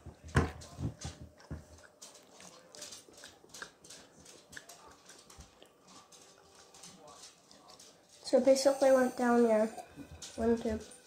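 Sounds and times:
chewing: 0:00.0 - 0:08.2.

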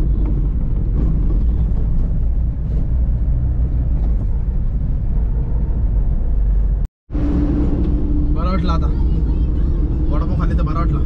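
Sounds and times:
engine and road rumble inside van: 0:00.0 - 0:11.0.

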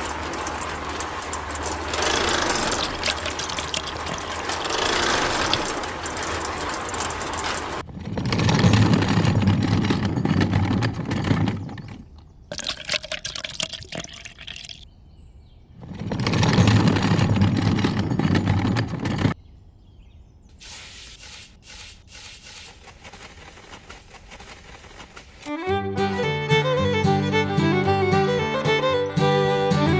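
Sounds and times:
wet concrete pouring from wheelbarrow: 0:00.0 - 0:10.0.

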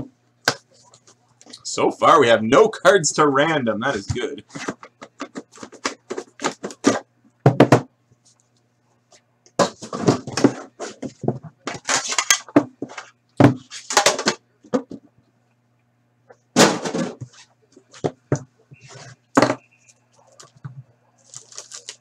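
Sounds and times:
knock on box: 0:06.8 - 0:07.9
crinkly packet handling: 0:21.2 - 0:22.0.

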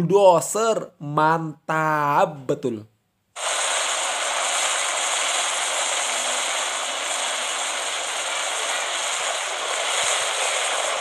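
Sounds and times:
steady high hiss: 0:03.4 - 0:11.0.

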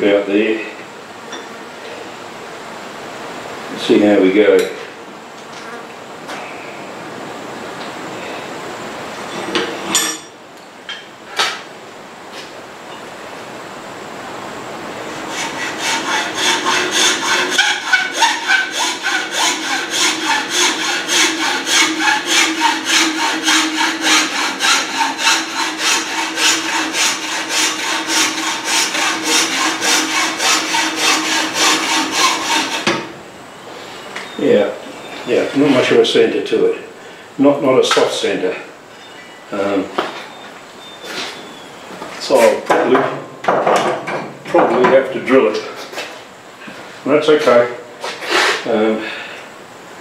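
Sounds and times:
hacksaw cutting antler: 0:15.4 - 0:33.0.

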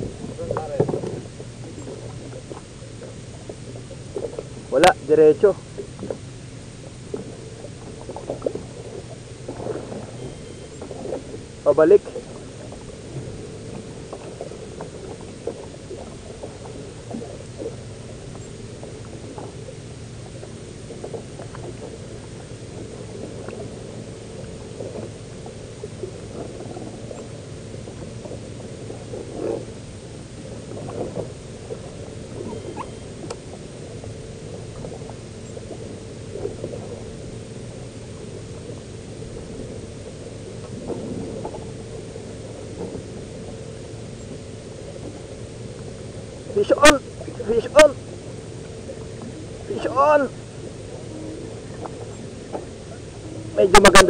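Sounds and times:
boat mechanical hum: 0:00.0 - 0:54.0
short squeaks: 0:32.4 - 0:33.2.

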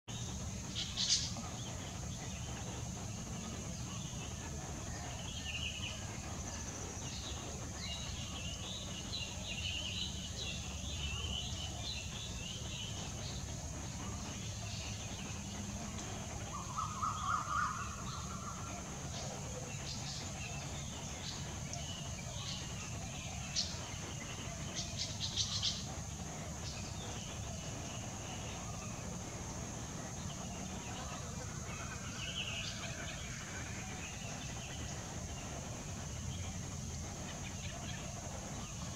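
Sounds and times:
small birds chirping: 0:00.0 - 0:38.9
steady high hiss: 0:00.0 - 0:38.9.

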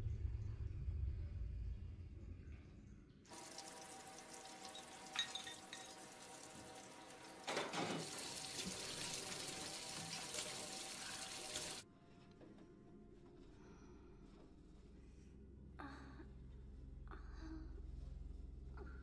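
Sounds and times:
tap water running: 0:03.3 - 0:11.8.

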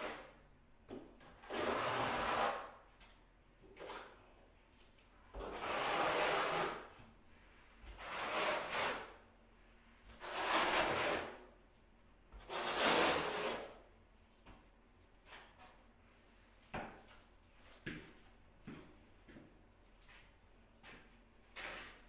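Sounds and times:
trowel scraping across wall: 0:00.0 - 0:00.4, 0:01.3 - 0:02.8, 0:05.3 - 0:07.0, 0:07.8 - 0:09.3, 0:10.0 - 0:11.5, 0:12.3 - 0:13.8.

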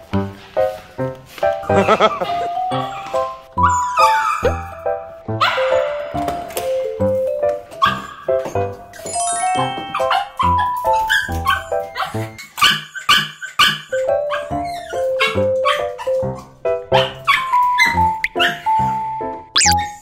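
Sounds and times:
background music: 0:00.0 - 0:12.4
small dog barking and yipping: 0:02.8 - 0:04.6, 0:09.9 - 0:18.7.

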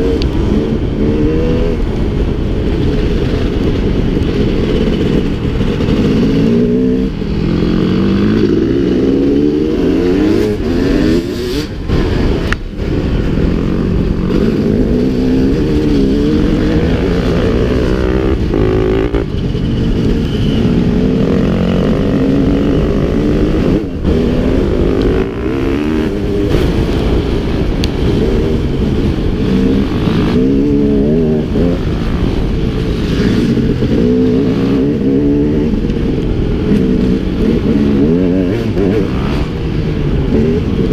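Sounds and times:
dirt bike engine revving: 0:13.4 - 0:19.4.

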